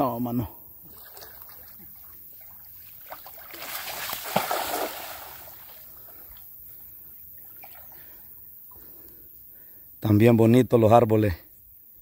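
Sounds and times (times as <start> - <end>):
cast net splashing on water: 0.9 - 5.8.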